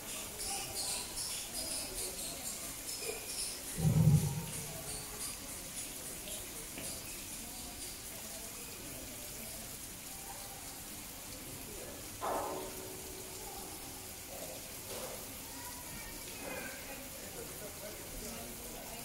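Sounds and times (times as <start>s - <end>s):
running water: 0.0s - 19.0s.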